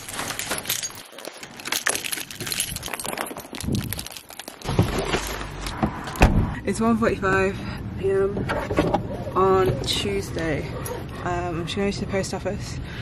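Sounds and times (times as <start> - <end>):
bag of parcels rustling: 0.0 - 5.8.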